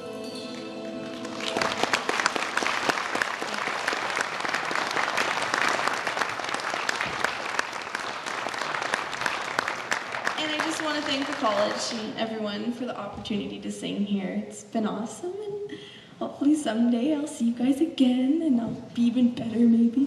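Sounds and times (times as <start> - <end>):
held music chord: 0.0 - 1.9
audience applauding: 1.0 - 12.1.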